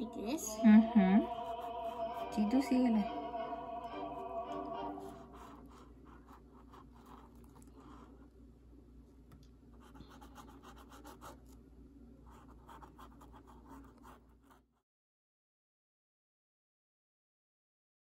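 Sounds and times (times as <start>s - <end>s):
paintbrush scratching on canvas: 1.2s - 2.9s, 5.0s - 8.3s, 9.8s - 11.6s, 12.3s - 14.7s.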